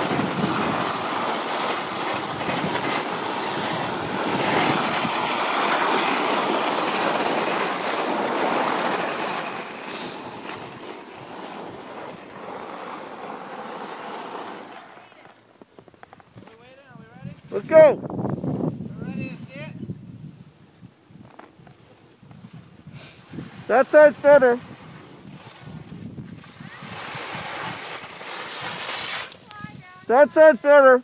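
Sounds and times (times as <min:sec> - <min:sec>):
wind rushing over microphone: 0:00.0 - 0:09.2, 0:17.0 - 0:21.3, 0:22.2 - 0:30.6
skis scraping on packed snow: 0:00.0 - 0:19.3, 0:20.4 - 0:31.0.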